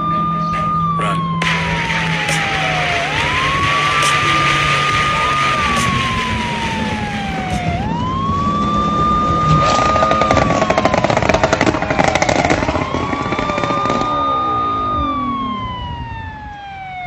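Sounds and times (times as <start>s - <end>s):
engine drone: 0.0s - 17.0s
wailing siren: 0.0s - 17.0s
loud rushing noise: 1.4s - 8.5s.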